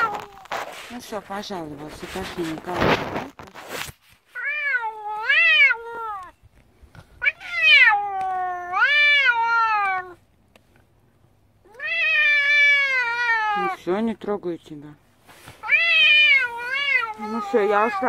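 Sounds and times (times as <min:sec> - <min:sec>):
cat meowing: 0:00.0 - 0:00.6, 0:04.4 - 0:06.4, 0:07.2 - 0:10.2, 0:11.6 - 0:13.9, 0:15.6 - 0:18.0.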